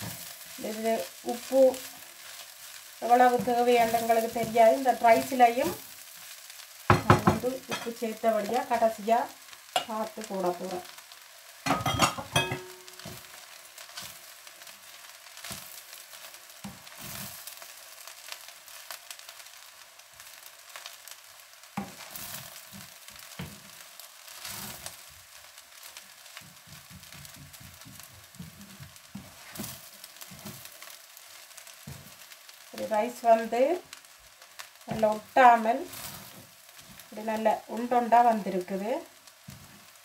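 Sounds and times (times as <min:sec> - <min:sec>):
rice sizzling in a frying pan: 0:00.0 - 0:40.0
spatula knocks: 0:06.9 - 0:07.4
spatula scraping a pan: 0:21.8 - 0:25.0, 0:25.8 - 0:32.3, 0:34.8 - 0:37.1.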